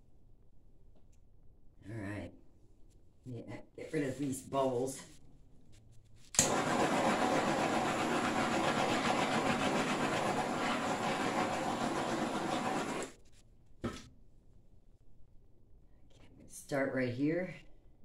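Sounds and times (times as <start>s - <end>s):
torch flame hissing: 6.4s - 8.8s.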